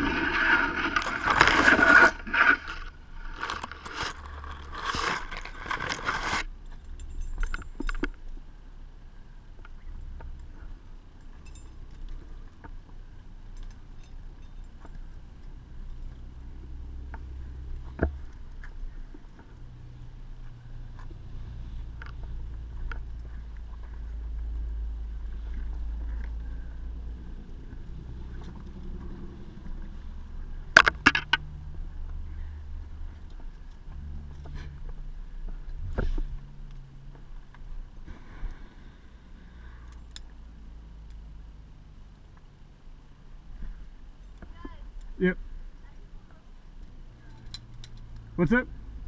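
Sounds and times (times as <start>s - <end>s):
metal climbing gear clinking: 0.0s - 8.4s, 9.8s - 12.7s, 13.4s - 16.1s, 47.3s - 48.2s
steady low rumble: 6.5s - 49.0s.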